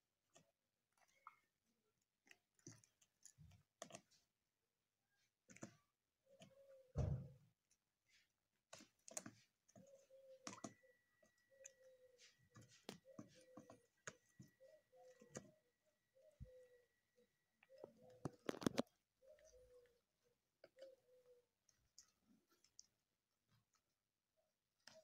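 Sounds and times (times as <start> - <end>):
turkeys pecking with beak clicks: 8.7 - 15.6, 17.6 - 19.9, 20.6 - 23.0
turkeys calling softly: 16.2 - 20.0.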